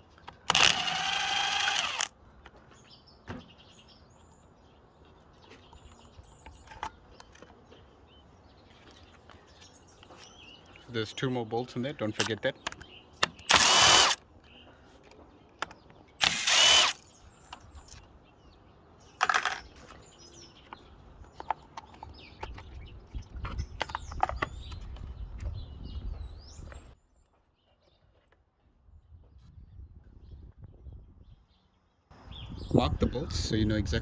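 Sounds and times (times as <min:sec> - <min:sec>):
cordless drill whirring: 0:00.4 - 0:02.1, 0:13.5 - 0:14.2, 0:16.2 - 0:17.0.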